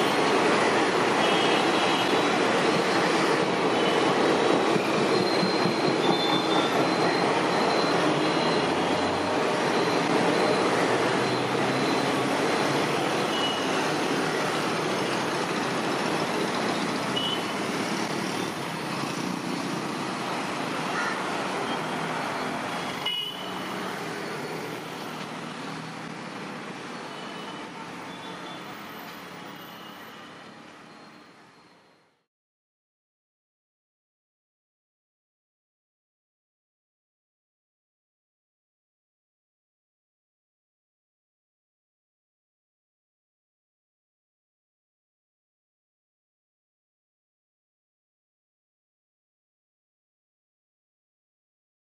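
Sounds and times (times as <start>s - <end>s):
train wheels rumbling on rails: 2.2s - 13.3s.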